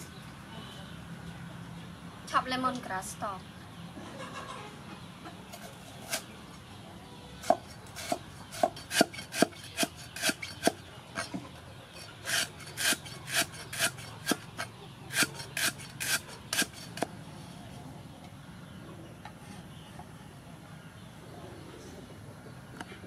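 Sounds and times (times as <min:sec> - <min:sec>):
cleaver chopping on wooden block: 0:07.4 - 0:11.4, 0:12.3 - 0:14.4, 0:15.1 - 0:17.1.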